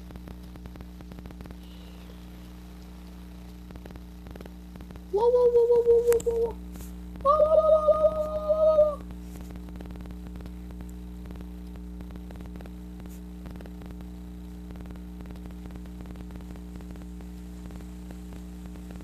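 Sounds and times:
faint hiss: 0:00.0 - 0:07.2
light crackle: 0:00.0 - 0:19.0
low electrical hum: 0:00.0 - 0:19.0.

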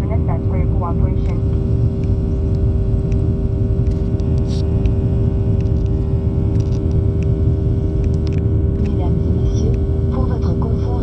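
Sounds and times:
jet cabin engine rumble: 0:00.0 - 0:11.0
steady hum: 0:00.0 - 0:11.0.

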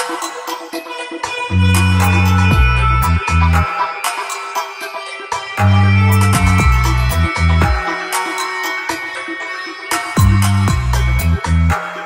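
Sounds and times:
deep bass line: 0:01.5 - 0:03.7, 0:05.6 - 0:07.8, 0:10.2 - 0:11.8.

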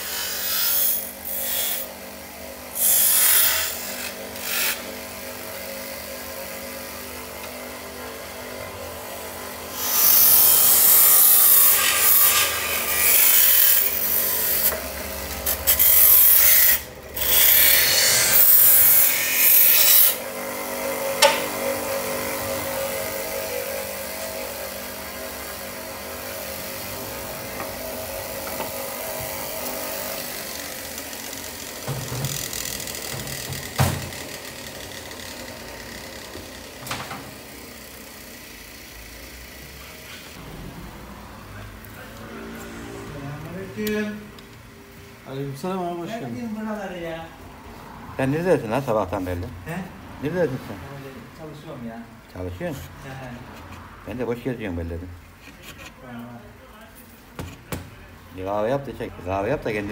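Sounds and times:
power tool scraping metal: 0:00.0 - 0:40.7.

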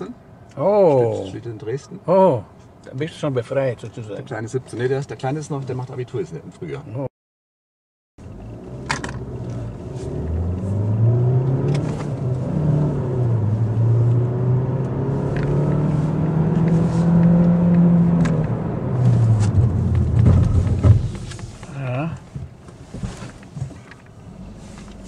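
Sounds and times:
car engine accelerating hard: 0:08.3 - 0:22.0.

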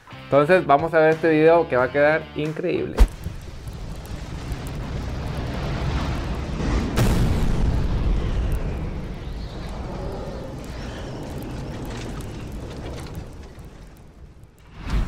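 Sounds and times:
deep rumbling explosion boom: 0:03.0 - 0:15.0.

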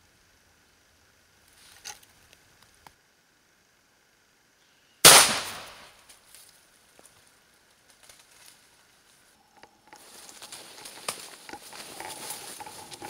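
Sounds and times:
shotgun shot: 0:05.0 - 0:06.0
faint rustling: 0:06.1 - 0:13.0.

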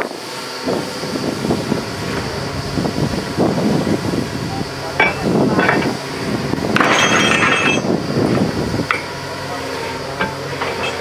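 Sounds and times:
drilling rig running: 0:00.0 - 0:11.0
metallic clinks and clanks: 0:06.8 - 0:07.9, 0:10.2 - 0:11.0.

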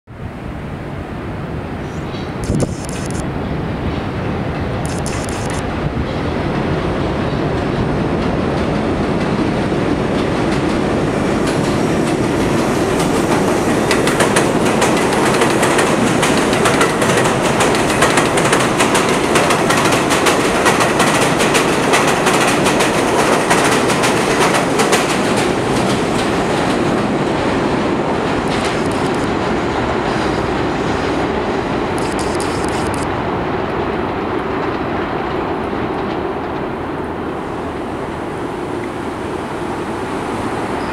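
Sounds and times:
subway train rumbling past: 0:00.1 - 0:02.4, 0:03.1 - 0:40.9
wheels clattering over rail joints: 0:11.4 - 0:27.0.

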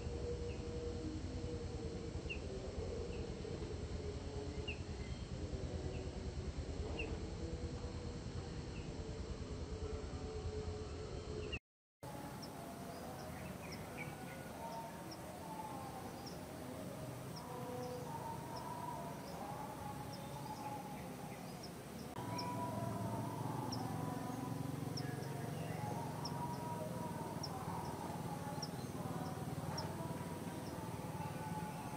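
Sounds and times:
low hum: 0:00.0 - 0:31.9
faint high chirps: 0:12.1 - 0:31.9.

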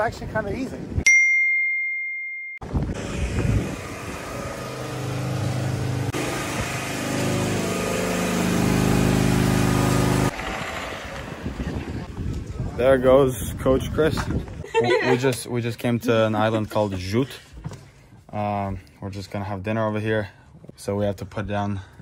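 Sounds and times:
car engine running: 0:02.6 - 0:12.1.

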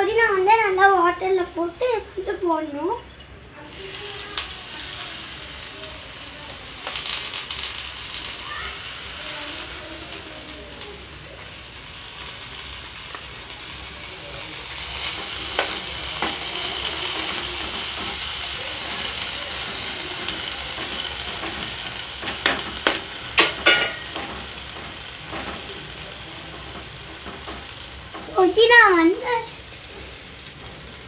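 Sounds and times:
leaves sizzling in hot oil: 0:03.6 - 0:31.0
spoon knocking and scraping pan: 0:19.6 - 0:25.6.

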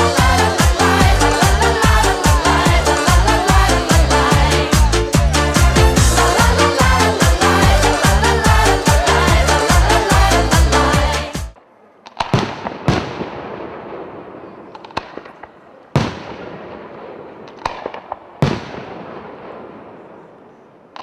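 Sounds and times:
loud dance music: 0:00.0 - 0:11.6
fireworks bangs and crackle: 0:12.0 - 0:20.1.

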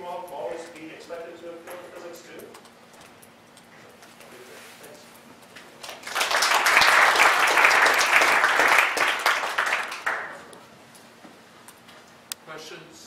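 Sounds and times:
audience applauding: 0:05.8 - 0:10.5.

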